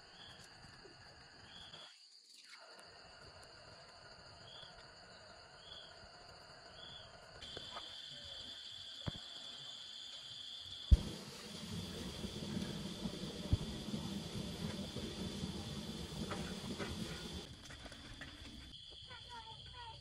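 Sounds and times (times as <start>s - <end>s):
insects trilling: 0.0s - 20.0s
low rumbling noise: 10.9s - 17.5s.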